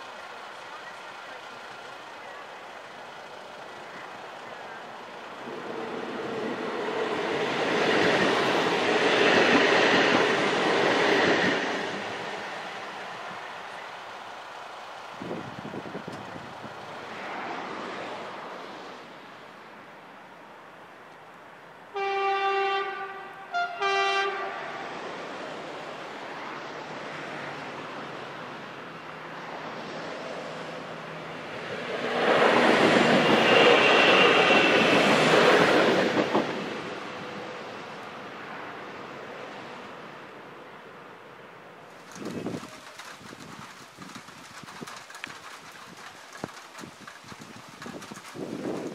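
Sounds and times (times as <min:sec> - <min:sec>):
train passing: 0:00.0 - 0:48.9
train horn blasts: 0:21.9 - 0:24.9.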